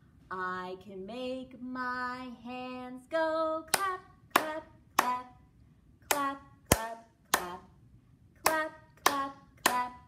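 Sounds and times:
woman singing: 0.3 - 5.5, 6.1 - 7.8, 8.4 - 10.0
hand claps: 6.1 - 7.6, 8.4 - 9.9.

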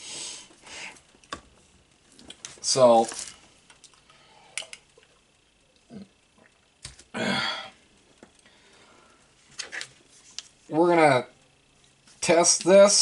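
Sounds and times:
breathy vocal sound: 7.1 - 7.8.

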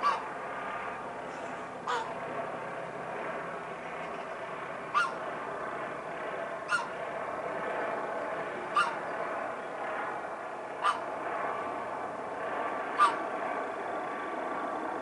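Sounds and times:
helicopter drone: 0.0 - 15.0
sharp animal call: 1.9 - 2.1, 4.9 - 5.2, 6.7 - 6.9, 8.8 - 9.0, 10.8 - 11.0, 13.0 - 13.2.

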